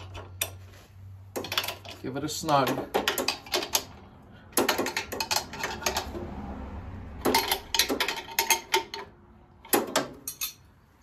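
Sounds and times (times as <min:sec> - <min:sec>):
wrench metallic clicks and clinks: 0:01.4 - 0:06.2, 0:07.2 - 0:10.8.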